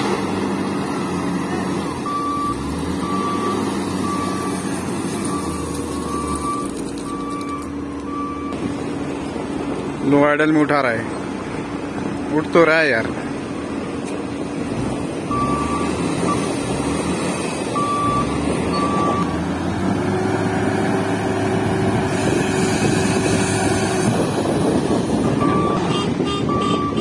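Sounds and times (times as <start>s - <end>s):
diesel engine running: 0.0s - 27.0s
reversing alarm beeping: 1.8s - 8.6s, 15.3s - 16.5s, 17.8s - 19.3s, 25.2s - 27.0s.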